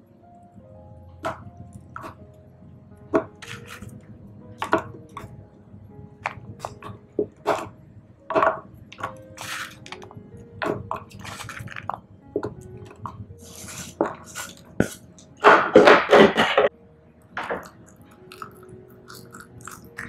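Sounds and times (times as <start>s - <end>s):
scraping off wooden board: 13.4s - 16.7s.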